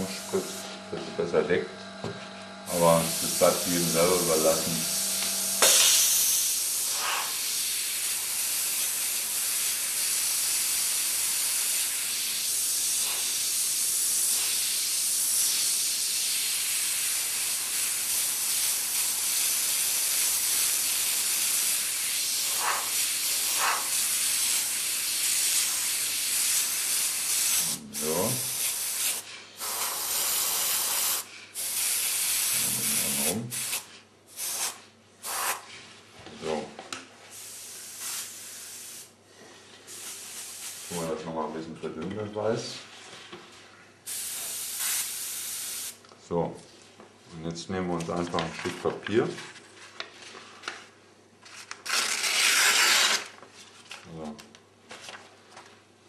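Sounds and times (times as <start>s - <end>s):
airbrush hissing: 0.0s - 35.7s, 37.3s - 39.1s, 39.8s - 41.1s, 44.1s - 46.0s.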